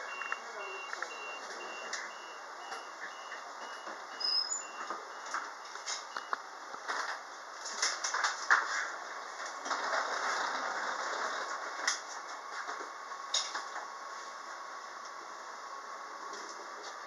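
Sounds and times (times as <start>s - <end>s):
train door warning beeps: 0.0s - 6.4s.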